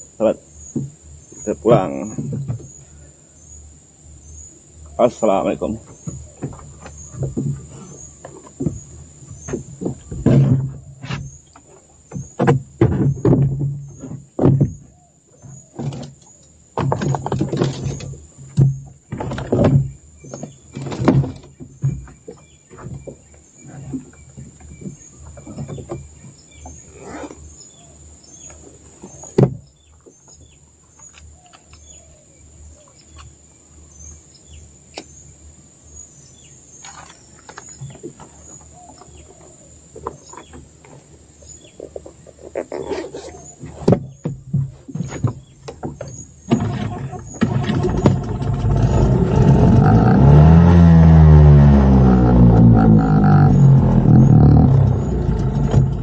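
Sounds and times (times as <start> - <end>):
loud knocks and bumps: 8.6 - 11.4, 12.1 - 14.9, 16.8 - 23.3, 43.8 - 56.0.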